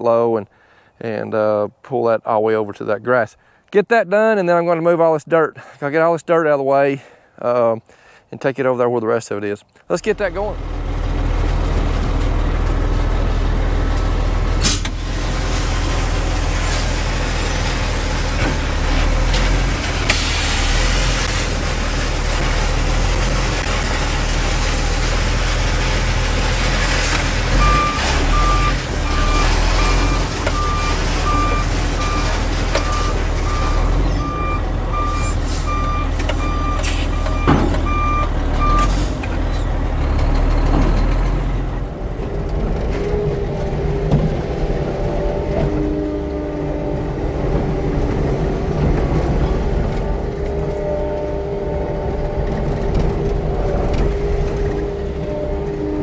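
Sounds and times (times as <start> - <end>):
diesel truck engine running: 10.0 - 56.0
burst of hiss: 20.1 - 21.5
reversing alarm beeps: 27.6 - 38.9.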